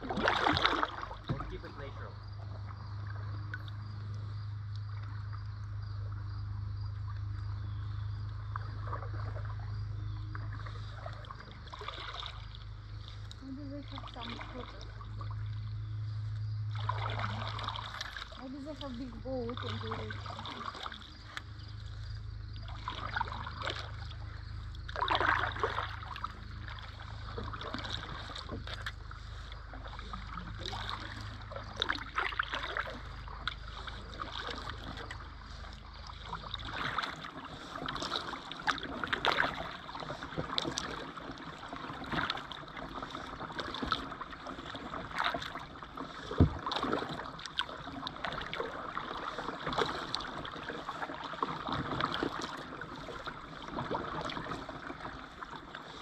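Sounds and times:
low rumble: 0.0s - 38.0s
paddles splashing in water: 0.0s - 56.0s.

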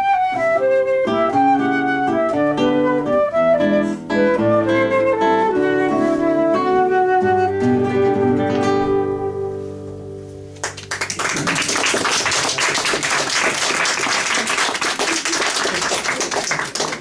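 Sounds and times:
flute and classical guitar: 0.0s - 10.5s
audience applause: 10.6s - 17.0s.

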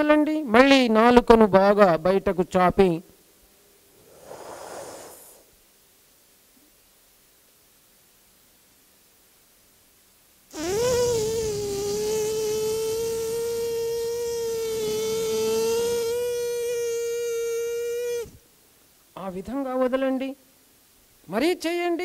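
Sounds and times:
man humming a high note: 10.6s - 18.4s.

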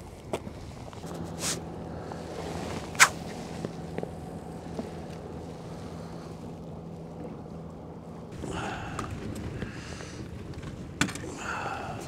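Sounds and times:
boat motor humming: 0.0s - 12.0s
sharp brief swish: 3.0s - 3.2s.

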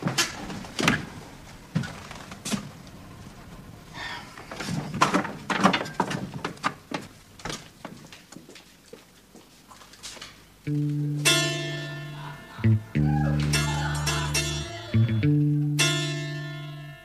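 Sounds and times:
footsteps going down stairs: 0.0s - 3.1s, 4.4s - 11.0s.

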